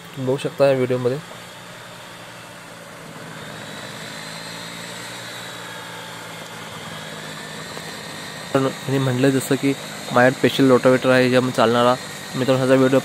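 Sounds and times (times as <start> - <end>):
cutter shredding plants: 0.0 - 13.0
faint high whine: 0.0 - 13.0
tractor engine running under load: 0.0 - 13.0.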